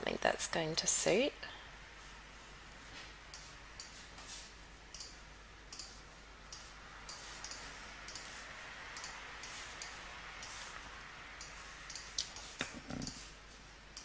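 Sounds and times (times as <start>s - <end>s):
faint steady hiss: 0.0s - 14.0s
computer mouse clicking: 4.9s - 8.3s, 8.9s - 10.6s, 11.4s - 13.2s.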